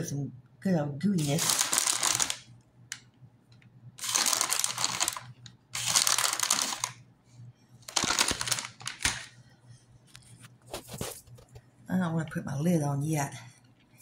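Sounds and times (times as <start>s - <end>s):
plastic bag crinkling: 1.2s - 2.5s, 4.0s - 7.0s, 7.9s - 9.3s.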